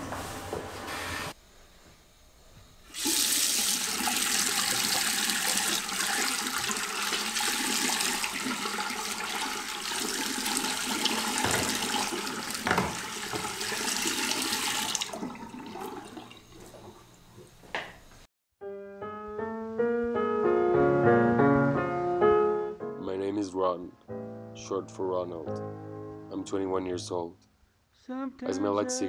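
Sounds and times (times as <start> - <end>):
tap water running into sink: 2.9 - 17.1
slow piano music: 18.6 - 27.0.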